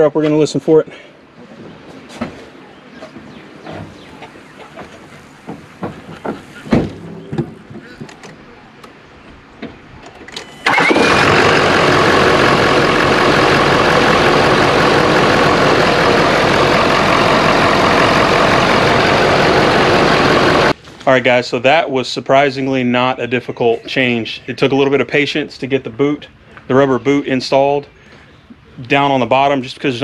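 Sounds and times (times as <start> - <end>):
diesel engine starting and idling: 10.2 - 20.8.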